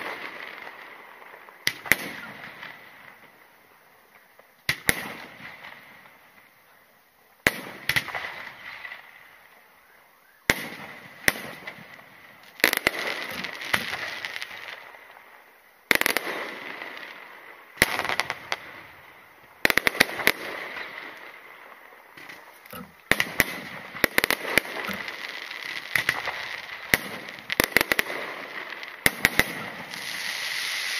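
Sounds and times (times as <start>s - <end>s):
crackling hiss of falling stars: 0.0s - 30.9s
firework shells bursting: 22.0s - 30.9s.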